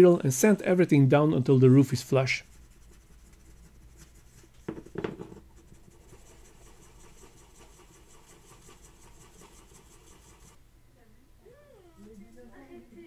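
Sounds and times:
sandpaper scratching: 0:02.3 - 0:04.6, 0:05.6 - 0:10.6.

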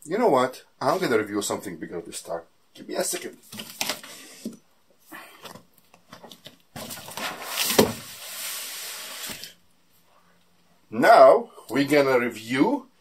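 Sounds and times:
cardboard box rustling: 0:06.1 - 0:09.5
cardboard box thump: 0:06.8 - 0:08.2.

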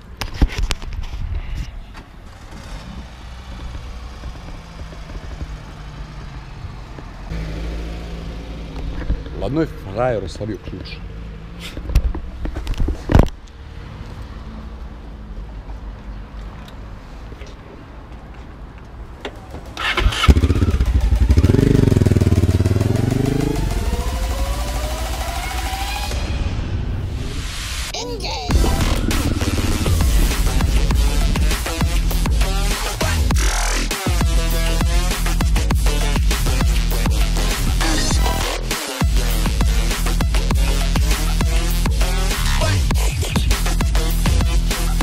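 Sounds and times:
vehicle engine idling: 0:02.0 - 0:11.6, 0:19.1 - 0:25.3
motorcycle engine revving: 0:02.2 - 0:10.2, 0:19.4 - 0:26.3, 0:28.5 - 0:44.9
motorcycle engine cranking: 0:19.3 - 0:23.4.

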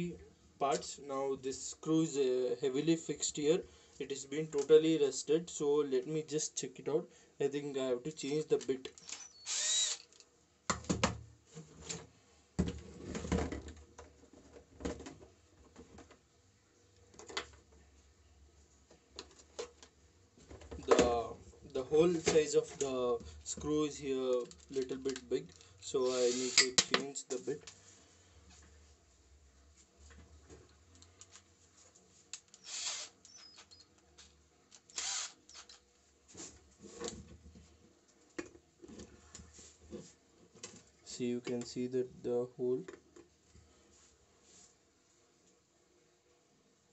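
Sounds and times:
drill chuck rasping: 0:09.0 - 0:10.2, 0:26.0 - 0:26.8, 0:32.5 - 0:33.8, 0:34.8 - 0:35.8
drill bits clattering: 0:26.0 - 0:27.0.

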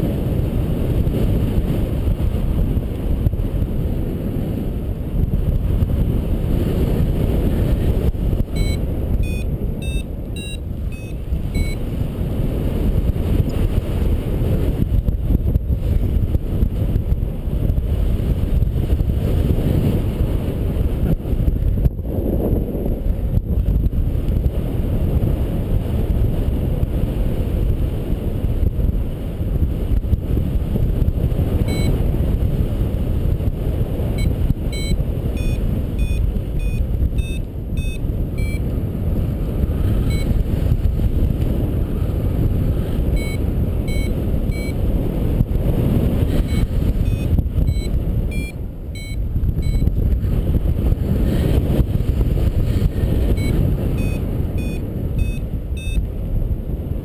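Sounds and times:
wind rushing over microphone: 0:00.0 - 0:57.0
short electronic beeps: 0:08.5 - 0:11.8, 0:31.6 - 0:32.0, 0:34.2 - 0:38.7, 0:40.0 - 0:40.4, 0:43.1 - 0:44.8, 0:46.4 - 0:49.9, 0:53.3 - 0:56.0.

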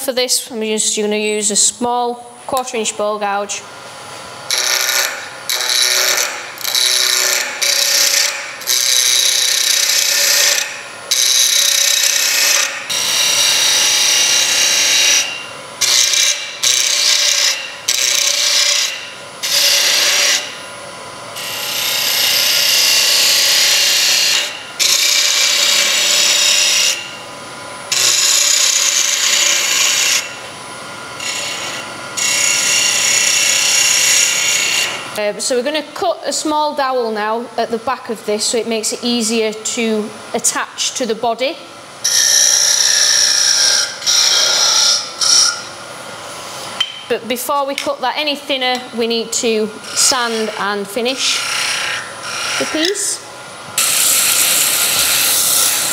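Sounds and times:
gouge cutting wood on lathe: 0:04.5 - 0:20.6, 0:21.4 - 0:27.2, 0:27.9 - 0:30.4, 0:31.2 - 0:35.1, 0:42.1 - 0:45.7, 0:49.4 - 0:53.2, 0:53.8 - 0:55.9.

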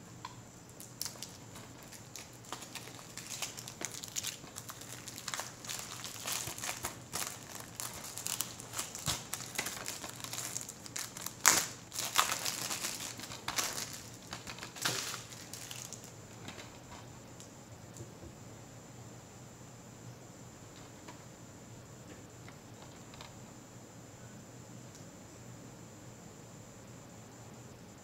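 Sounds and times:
plastic wrap crinkling: 0:00.8 - 0:16.1.

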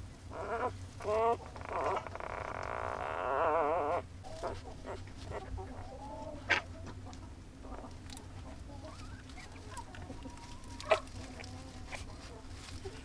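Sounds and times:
squeaky animal calls: 0:00.3 - 0:04.6.

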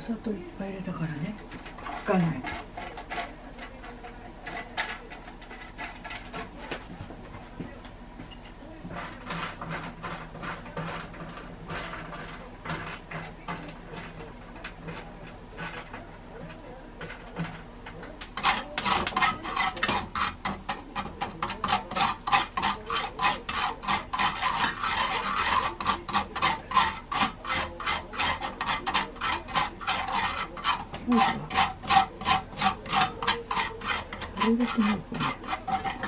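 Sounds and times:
small fish scraping in a pan: 0:08.9 - 0:36.0.

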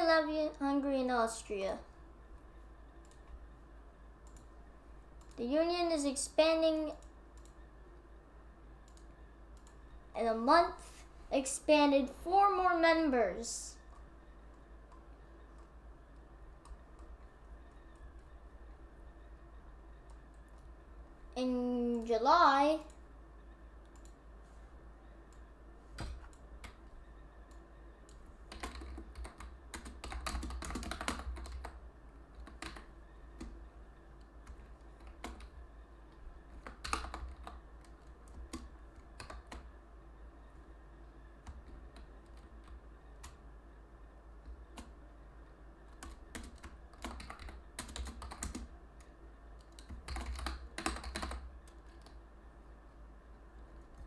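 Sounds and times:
faint low hum: 0:00.0 - 0:54.0
keyboard typing: 0:02.9 - 0:03.4, 0:04.2 - 0:04.6, 0:05.2 - 0:07.7, 0:08.8 - 0:10.0, 0:13.8 - 0:20.8, 0:23.8 - 0:24.2, 0:25.3 - 0:39.7, 0:41.4 - 0:43.4, 0:44.4 - 0:45.0, 0:45.8 - 0:52.2.

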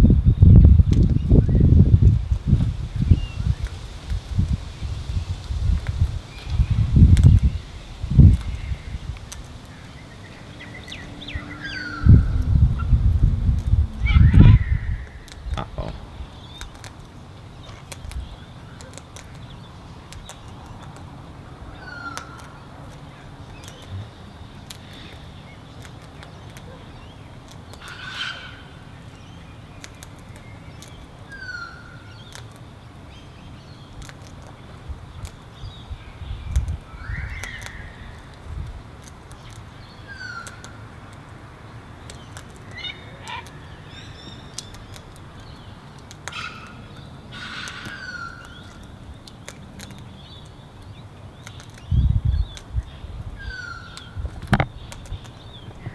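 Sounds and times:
beak cracking seeds clicks: 0:00.8 - 0:01.2, 0:08.2 - 0:09.9, 0:13.1 - 0:14.4, 0:15.0 - 0:21.2, 0:22.0 - 0:28.0, 0:29.0 - 0:31.3, 0:32.2 - 0:33.0, 0:33.8 - 0:35.8, 0:36.4 - 0:41.4, 0:42.0 - 0:52.8, 0:53.8 - 0:55.9
dull low thumps: 0:12.0 - 0:16.1
short thin bird calls: 0:14.0 - 0:16.7, 0:46.3 - 0:48.8.

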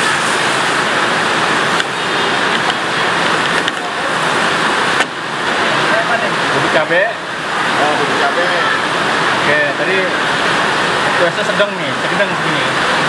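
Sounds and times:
noodles sizzling in a frying pan: 0:00.0 - 0:00.8.

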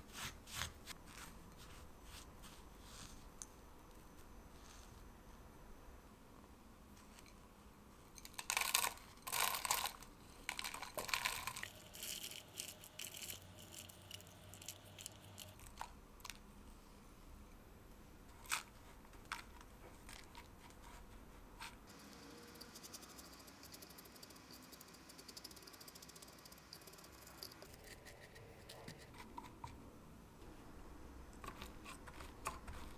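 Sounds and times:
biscuit crumbs scraped and pattering: 0:00.1 - 0:03.3, 0:31.4 - 0:32.9.

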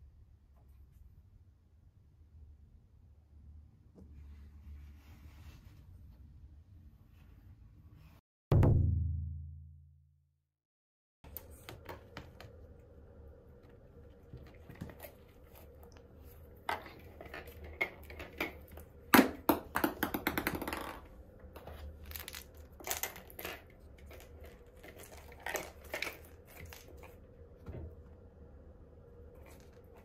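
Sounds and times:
sharp knock: 0:08.5 - 0:09.6.

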